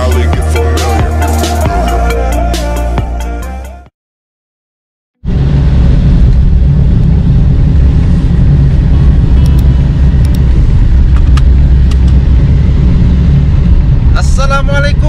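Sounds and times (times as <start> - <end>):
car road and engine noise: 0.0 - 3.2, 5.2 - 15.0.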